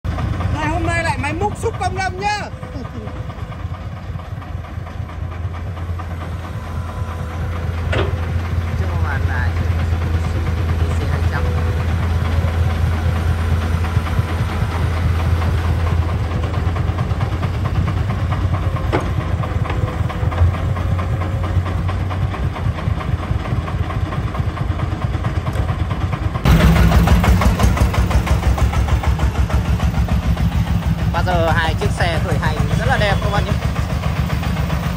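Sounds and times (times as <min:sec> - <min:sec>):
diesel engines running: 0:00.0 - 0:34.9
dump truck diesel engine idling: 0:00.0 - 0:34.9
excavator bucket thud: 0:07.8 - 0:08.4.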